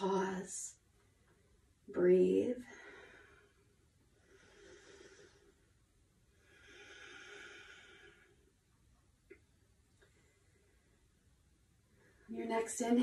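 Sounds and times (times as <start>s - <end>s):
woman breathing slowly: 2.6s - 8.8s, 10.0s - 11.2s.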